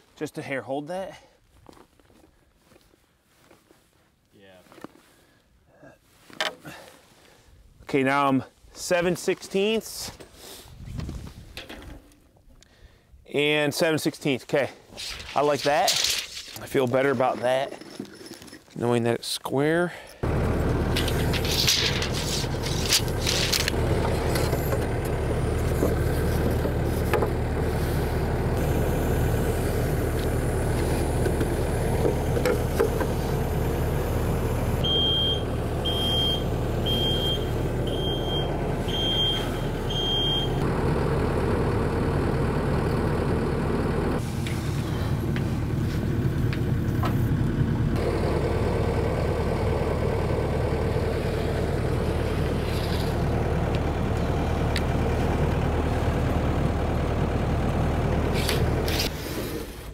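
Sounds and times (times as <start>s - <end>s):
heavy vehicle engine idling: 20.2s - 59.1s
backup alarm beeping: 34.8s - 40.6s.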